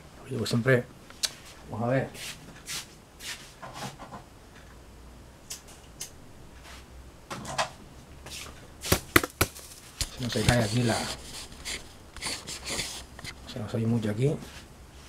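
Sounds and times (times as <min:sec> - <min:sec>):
rustling and light knocks: 0:02.2 - 0:04.3.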